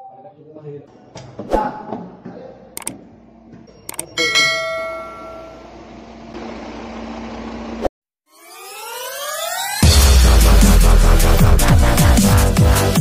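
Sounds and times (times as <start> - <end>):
notification bell ding: 3.7 - 5.8
rising synth sweep: 8.3 - 12.3.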